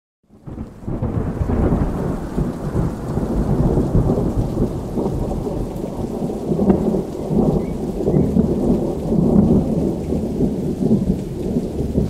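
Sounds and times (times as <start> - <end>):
rain: 0.2 - 12.0
wind: 0.3 - 12.0.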